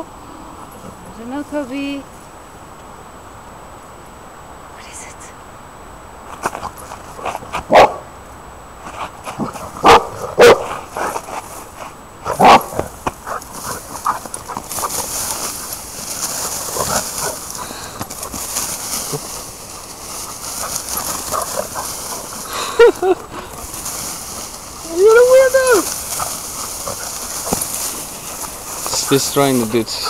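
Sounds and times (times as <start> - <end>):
dog barking: 7.7 - 8.1, 9.8 - 11.1, 12.2 - 14.6
rustle of wheat stalks: 8.7 - 30.0.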